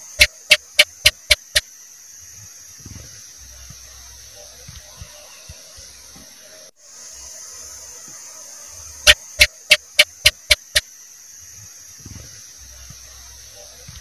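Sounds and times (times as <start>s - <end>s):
gecko chirping: 0.0s - 1.7s, 9.0s - 10.9s
steady high hiss: 0.0s - 14.0s.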